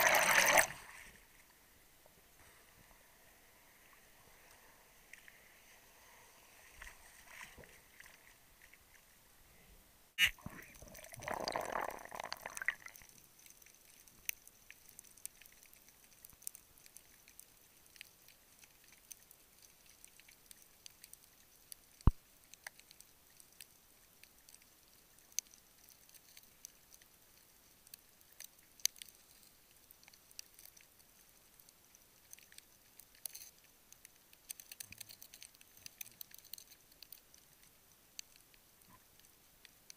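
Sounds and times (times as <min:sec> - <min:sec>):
rush of bubbles: 0:00.0 - 0:01.2, 0:10.3 - 0:13.0
underwater clicks and crackles: 0:10.2 - 0:39.9.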